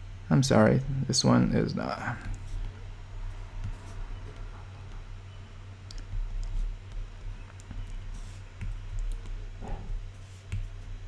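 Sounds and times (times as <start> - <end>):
low electrical hum: 0.0 - 11.0.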